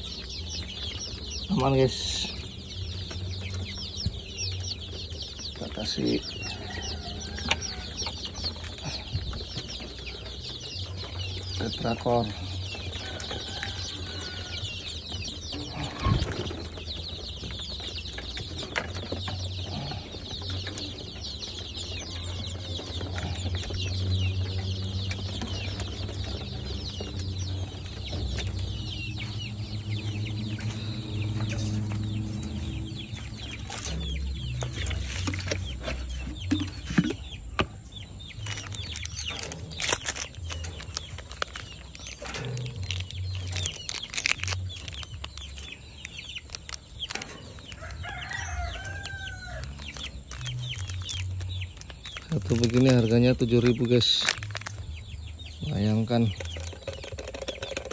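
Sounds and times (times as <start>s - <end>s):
chicks peeping: 0.0s - 57.9s
sharp knocks and clatters: 56.1s - 57.9s.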